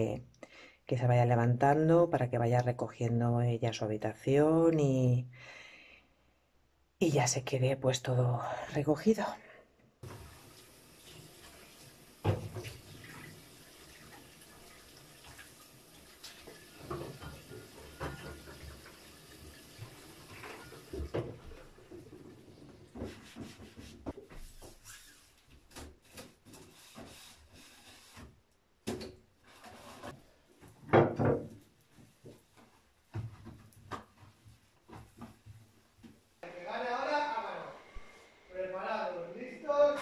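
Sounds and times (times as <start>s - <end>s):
tap running into sink: 12.2s - 13.3s, 16.2s - 22.0s
sponge wiping: 22.8s - 28.3s.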